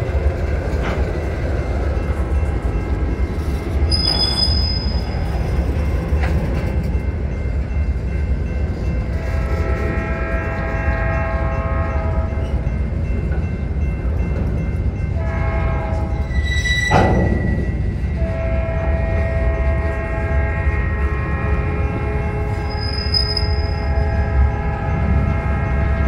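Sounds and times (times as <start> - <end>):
train wheels rumbling on rails: 0.0 - 26.0
locomotive air horn blasts: 9.2 - 12.4, 15.2 - 16.2, 18.1 - 26.0.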